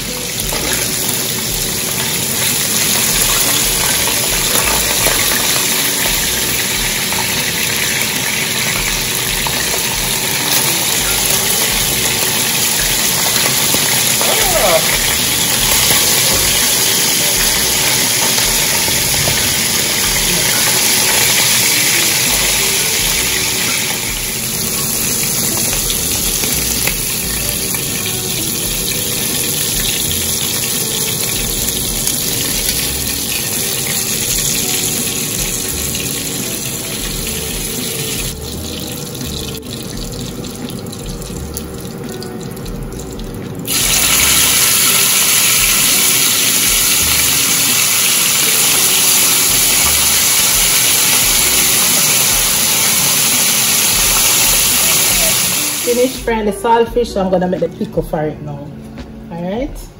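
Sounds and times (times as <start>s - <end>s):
fish frying in hot oil: 0.0s - 56.3s.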